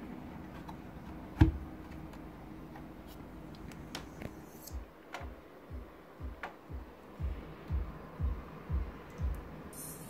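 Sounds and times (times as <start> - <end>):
heavy low thump: 5.2 - 9.5.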